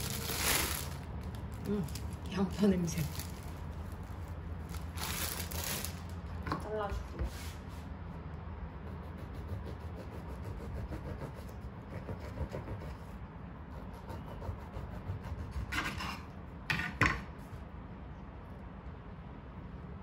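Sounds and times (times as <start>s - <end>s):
bread knife sawing through bagel: 8.9s - 13.1s, 13.7s - 16.3s.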